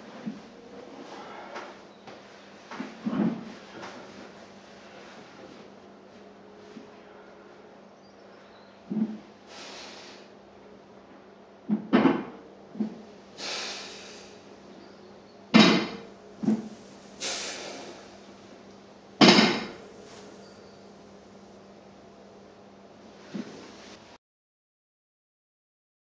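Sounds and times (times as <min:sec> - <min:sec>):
forceful breaths: 0:01.0 - 0:01.8, 0:13.4 - 0:14.5, 0:16.5 - 0:18.2
barbell plates thudding on floor: 0:15.6 - 0:16.7, 0:19.2 - 0:19.8.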